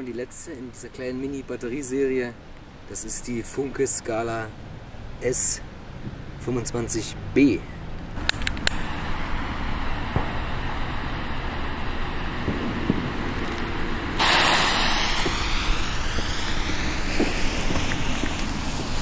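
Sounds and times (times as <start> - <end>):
outdoor background noise: 0.0 - 19.0
firework spraying sparks hiss: 8.2 - 19.0.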